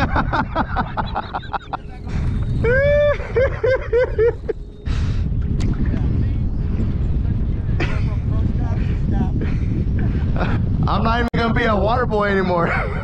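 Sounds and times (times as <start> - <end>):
laughter: 0.0 - 4.6, 7.8 - 8.4, 12.6 - 13.0
wind buffeting microphone: 0.0 - 13.0.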